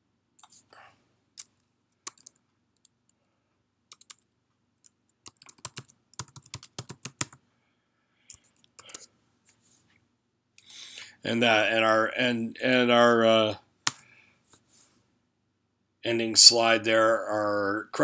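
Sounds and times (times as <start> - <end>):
typing on computer keyboard: 1.4 - 3.0, 3.9 - 7.4, 8.3 - 9.1.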